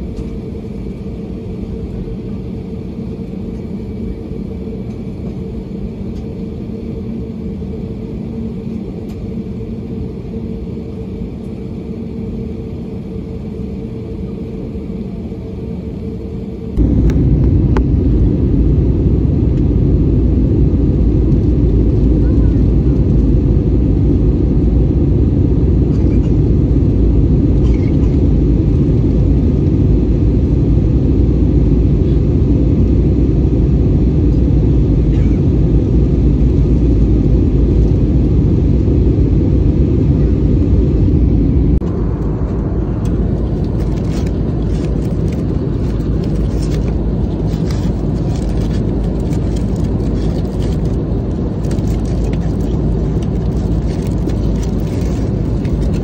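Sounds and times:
cabin hum: 0.0 - 56.0
jet engine rumble in cabin: 0.0 - 56.0
clicks and rustles: 43.0 - 51.0, 51.6 - 56.0.

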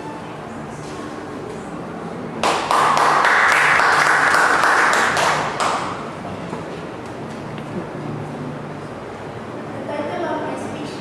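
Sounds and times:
small audience clapping: 2.4 - 6.2.

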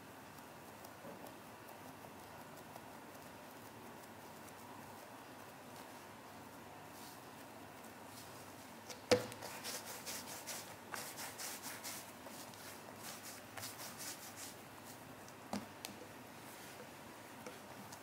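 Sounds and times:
hands rubbing dough on a mat: 9.3 - 15.1.

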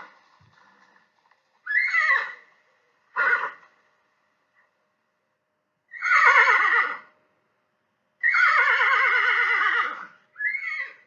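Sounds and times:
horse whinnying: 1.6 - 2.5, 3.2 - 3.6, 5.9 - 7.1, 8.2 - 11.0.

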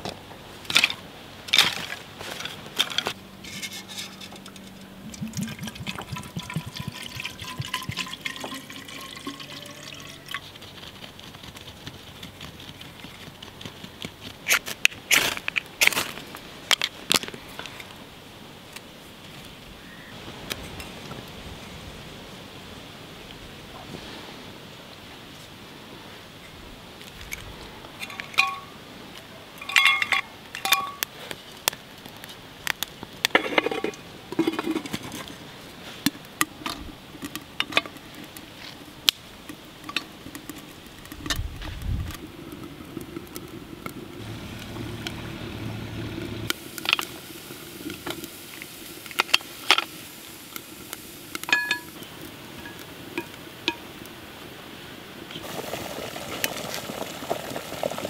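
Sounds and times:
metal kettle clinking and knocking: 4.4 - 10.4, 28.0 - 28.7, 29.6 - 31.0, 51.5 - 51.9
frying pan set on metal: 28.0 - 28.7, 29.6 - 31.1, 51.3 - 52.0.

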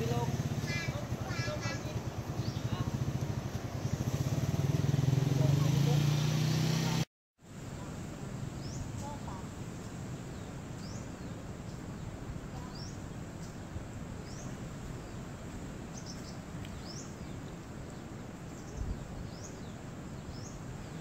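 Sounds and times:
bird chirping: 0.0 - 4.5.

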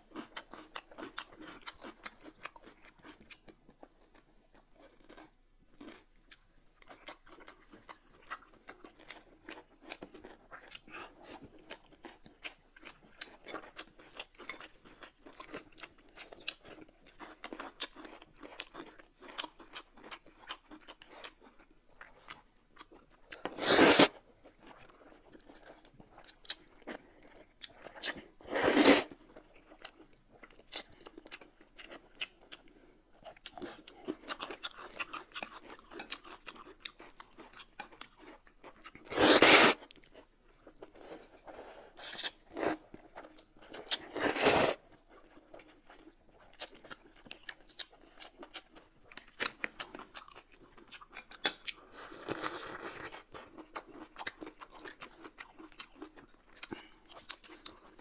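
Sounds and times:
wet chewing and smacking: 0.0 - 28.4, 29.1 - 39.1, 39.8 - 58.0
slurping noodles: 23.5 - 24.2, 28.0 - 29.1, 39.1 - 39.8, 44.0 - 44.8.

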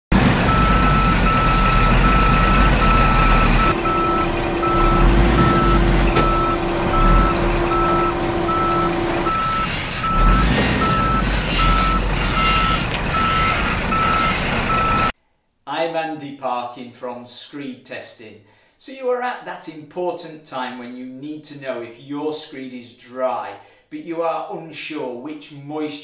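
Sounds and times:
low engine rumble: 0.1 - 15.1
truck reversing alarm beeping: 0.1 - 15.1.

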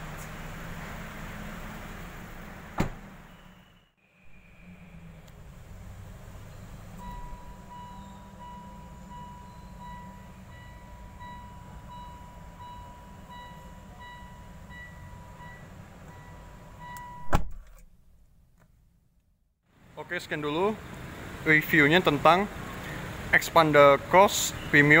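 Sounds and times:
dashboard warning chime beeping: 6.9 - 17.4.

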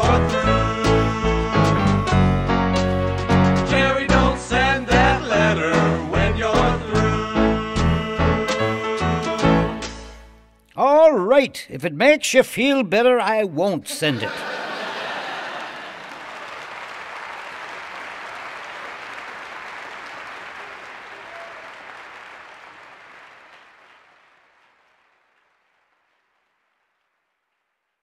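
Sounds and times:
audience applauding: 14.4 - 27.3.

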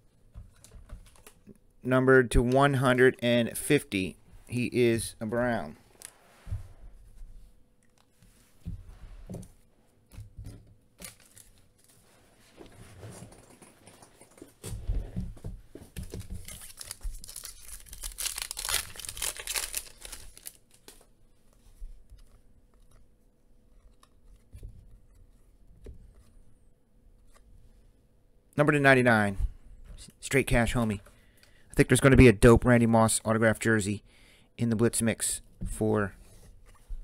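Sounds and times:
foil wrapper tearing and crinkling: 16.3 - 21.0.

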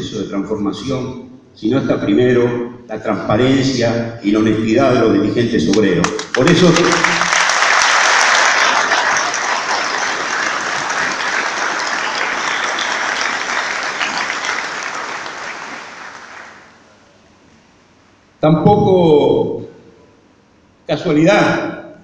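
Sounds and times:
audience applauding: 6.0 - 16.8.

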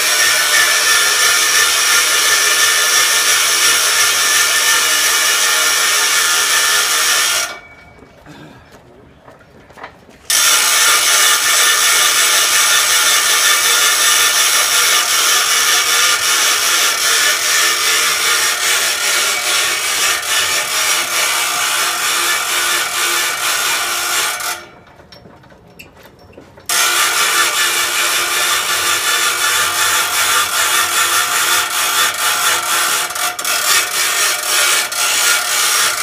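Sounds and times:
steady mechanical whine: 10.3 - 25.3, 26.6 - 36.0.

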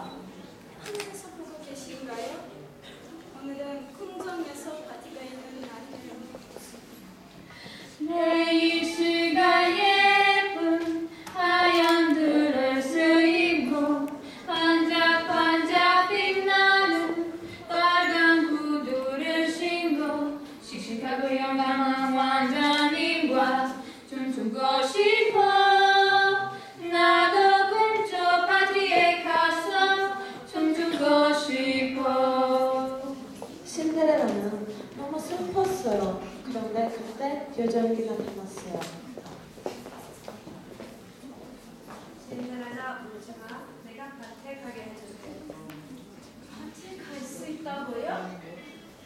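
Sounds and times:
women singing slow song: 8.0 - 35.8.

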